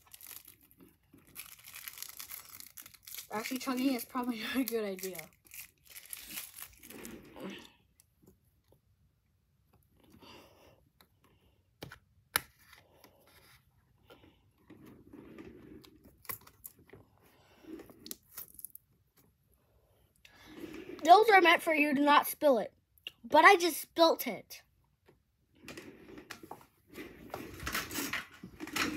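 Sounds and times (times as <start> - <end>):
juice box crinkling: 0.0 - 7.4.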